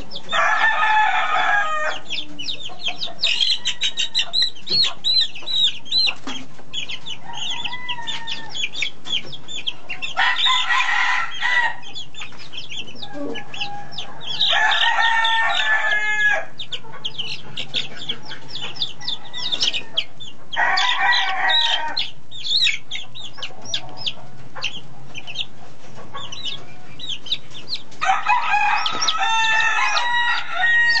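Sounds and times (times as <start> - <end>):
chicks cheeping: 0.0 - 31.0
rooster crowing: 0.2 - 2.2, 3.2 - 4.5, 7.2 - 8.7, 10.1 - 11.9, 13.0 - 16.6, 18.5 - 22.1, 28.0 - 31.0.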